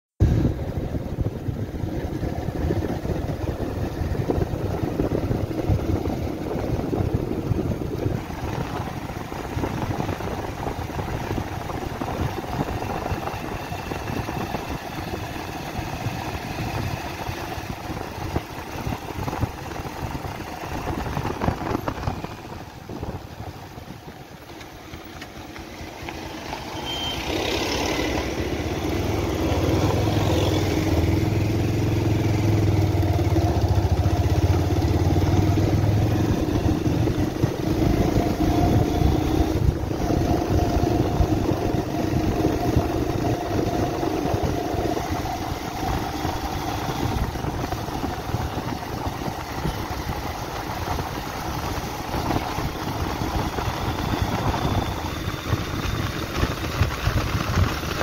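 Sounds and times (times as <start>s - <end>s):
wind rushing: 0.2s - 24.4s
motorcycle engine running: 0.2s - 58.0s.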